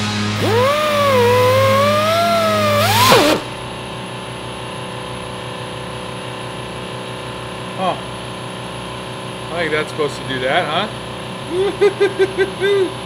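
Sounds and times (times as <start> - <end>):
pneumatic die grinder grinding steel: 0.3 - 3.7.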